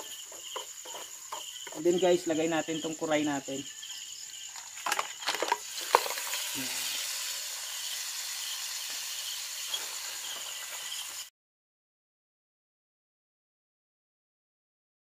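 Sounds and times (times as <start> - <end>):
food sizzling in butter: 4.4 - 11.3.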